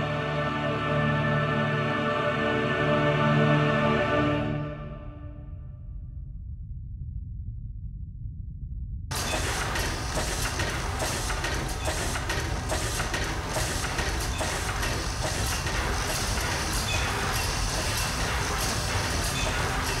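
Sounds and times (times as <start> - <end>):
low rumble: 4.6 - 20.0
dense steady rushing noise: 9.1 - 20.0.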